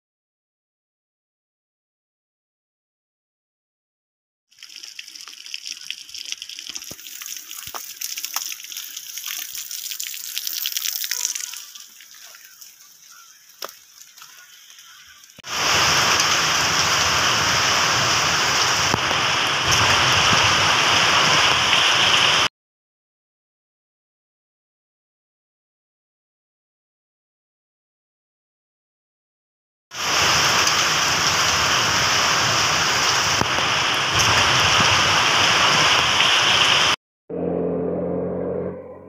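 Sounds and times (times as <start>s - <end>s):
rain pattering hiss: 4.5s - 22.5s, 30.0s - 37.0s
heavy rain downpour: 9.4s - 22.5s, 30.0s - 37.0s.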